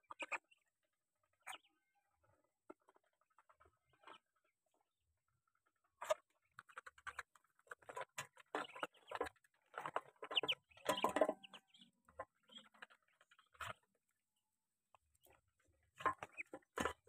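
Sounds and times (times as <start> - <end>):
duck bills dabbling in wet mash: 14.9 - 17.0.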